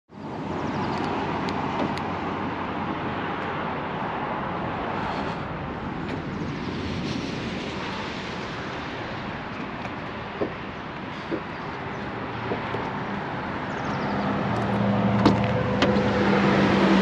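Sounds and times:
motorway traffic hum: 0:00.1 - 0:17.0.

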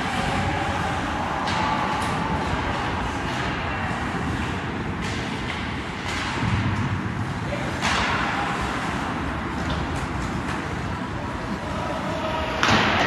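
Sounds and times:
faint voices: 0:00.0 - 0:05.0, 0:07.2 - 0:13.0.

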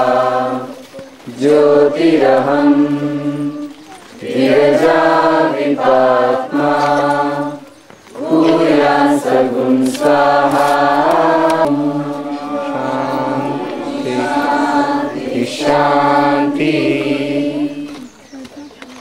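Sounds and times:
group of voices chanting: 0:00.0 - 0:18.1.

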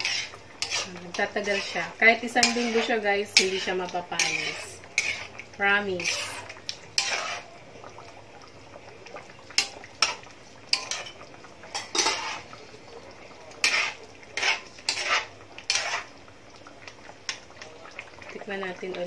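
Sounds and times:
metal spatula scraping a pan: 0:00.0 - 0:07.5, 0:09.6 - 0:12.6, 0:13.5 - 0:16.2.

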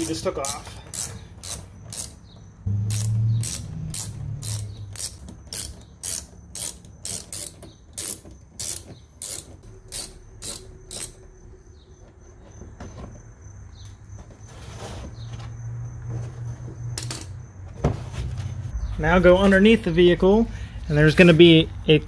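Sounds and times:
ratchet clicking: 0:00.0 - 0:11.2.

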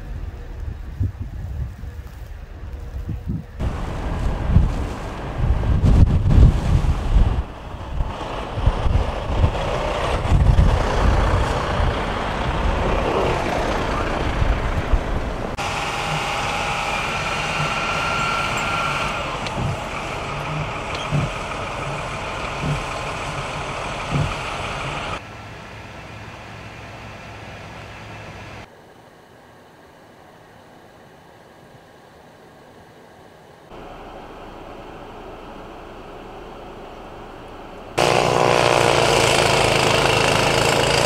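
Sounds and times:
steady engine hum: 0:00.0 - 0:28.7, 0:33.7 - 0:41.0
motor grader engine running: 0:03.6 - 0:28.7, 0:33.7 - 0:41.0
steady engine whine: 0:07.0 - 0:28.7, 0:33.7 - 0:41.0
dull thumps: 0:24.1 - 0:24.4.

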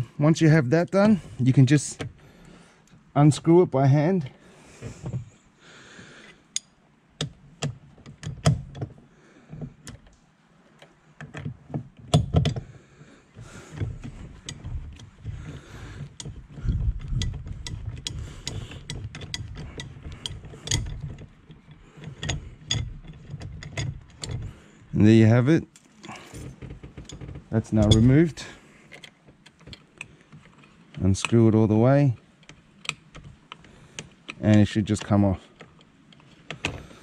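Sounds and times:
tool handling noise: 0:06.2 - 0:25.0, 0:25.7 - 0:37.0
ratchet clicking: 0:14.5 - 0:21.1.

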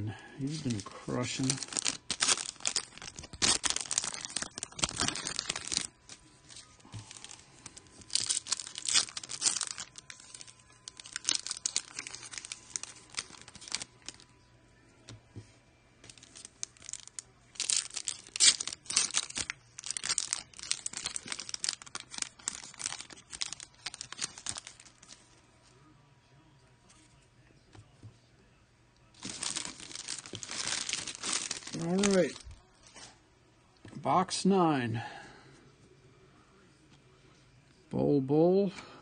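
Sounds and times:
foil wrappers crinkling and tearing: 0:00.4 - 0:14.3, 0:16.0 - 0:25.4, 0:29.1 - 0:33.1.

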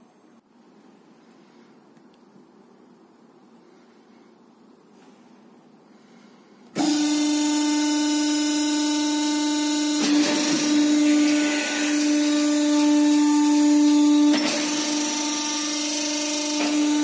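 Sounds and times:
motor whine: 0:06.8 - 0:17.0.

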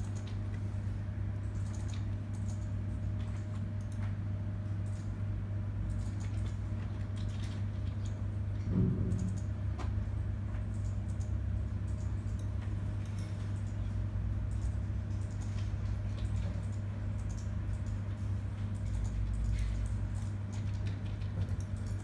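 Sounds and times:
steady low hum: 0:00.0 - 0:22.0
computer mouse clicks: 0:01.4 - 0:04.2, 0:05.9 - 0:08.2, 0:09.1 - 0:10.0, 0:10.6 - 0:13.8, 0:14.4 - 0:22.0.

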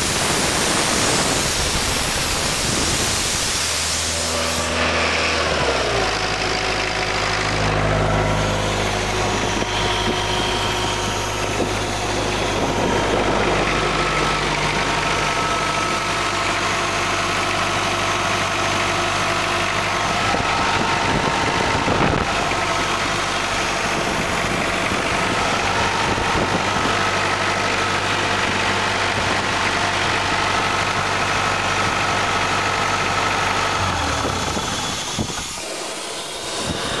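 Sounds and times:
air compressor engine humming: 0:00.0 - 0:37.0.

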